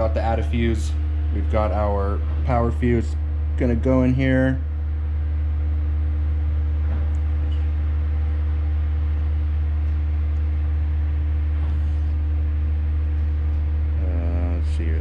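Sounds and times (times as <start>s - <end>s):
loud low hum: 0.0s - 15.0s.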